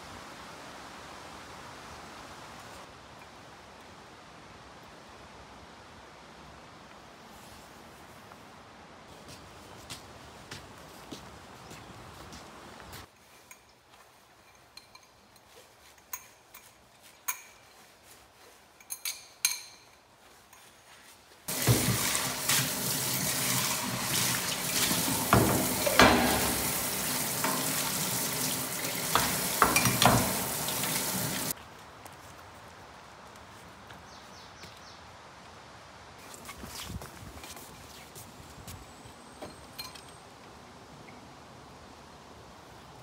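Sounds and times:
dishes clinking: 14.4s - 17.8s, 18.8s - 20.0s, 24.6s - 27.8s, 29.0s - 31.5s
tap water running into sink: 21.5s - 31.5s
dishes knocking against steel sink: 25.3s - 26.7s, 29.1s - 30.5s.

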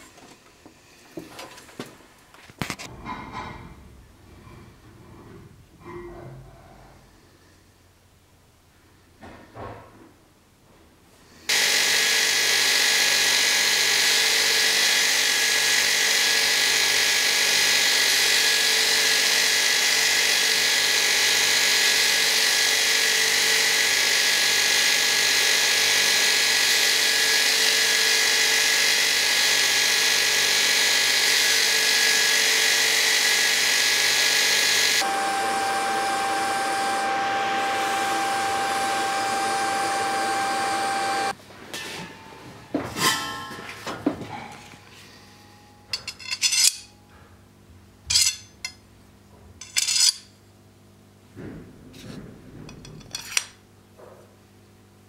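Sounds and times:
belt grinder whine: 11.5s - 41.4s
machine hum with tone: 35.0s - 41.4s, 42.0s - 46.0s.

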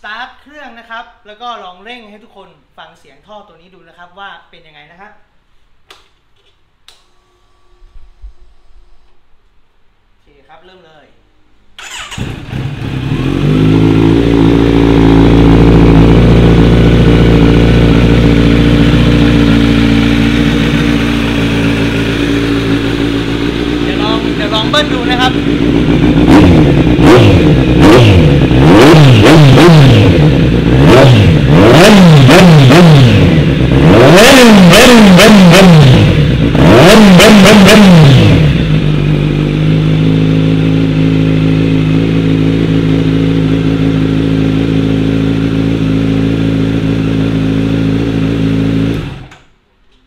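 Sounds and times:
motorcycle engine idling: 11.8s - 28.6s, 38.2s - 48.9s
motorcycle engine revving: 11.8s - 49.4s.

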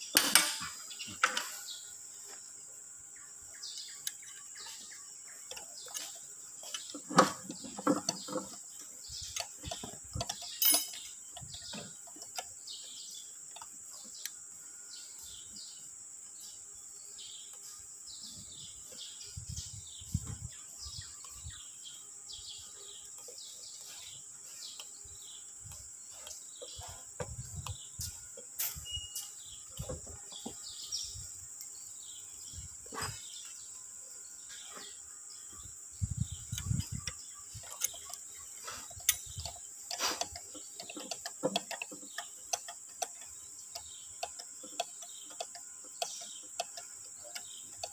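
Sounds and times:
birds chirping: 0.0s - 47.9s
high insect drone: 0.0s - 47.9s
metal parts clinking: 9.4s - 11.1s.

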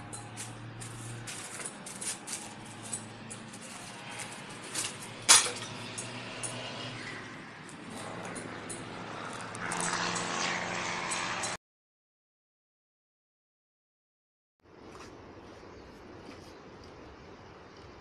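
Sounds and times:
small clinks and knocks: 0.0s - 7.0s, 7.6s - 10.4s
sharp clatter: 0.0s - 11.6s
footsteps crunching through paper: 0.4s - 2.9s.

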